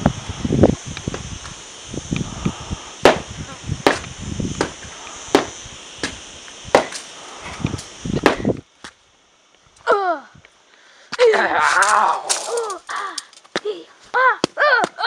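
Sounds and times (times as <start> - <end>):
foam noodles whacking: 3.0 - 6.2, 8.2 - 8.6.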